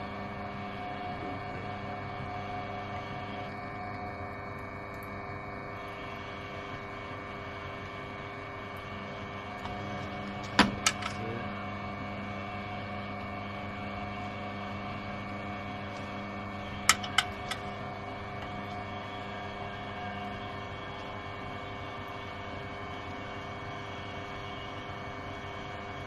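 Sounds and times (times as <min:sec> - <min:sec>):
pillar drill motor running: 0:05.3 - 0:26.0.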